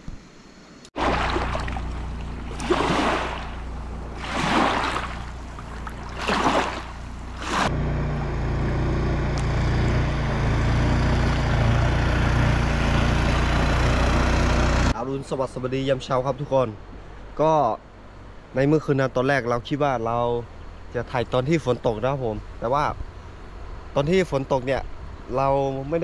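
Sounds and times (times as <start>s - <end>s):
low hum: 0.7s - 14.9s
wind and water rushing: 0.9s - 7.7s.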